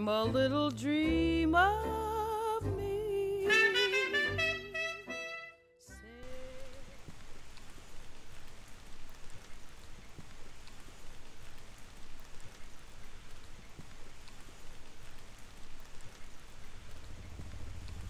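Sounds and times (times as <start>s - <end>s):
light rain on pavement: 6.2s - 18.0s.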